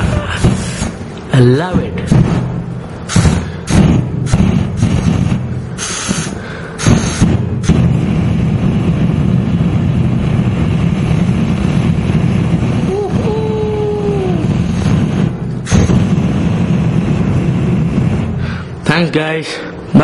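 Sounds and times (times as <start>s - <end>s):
short hissing bursts: 0.0s - 1.2s, 2.8s - 7.9s, 12.9s - 17.0s
flames rushing: 0.0s - 20.0s.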